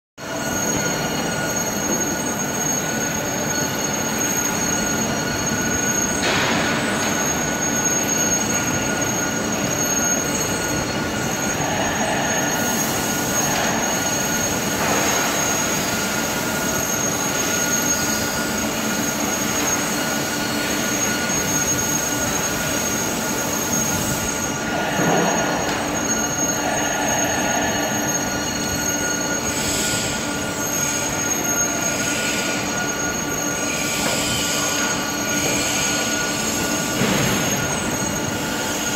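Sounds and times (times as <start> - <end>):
hydraulic machine humming and whining: 0.2 - 38.9.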